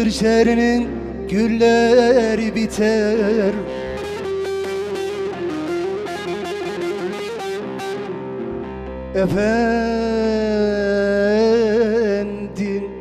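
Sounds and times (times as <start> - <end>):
long-necked lute picked: 0.0 - 13.0.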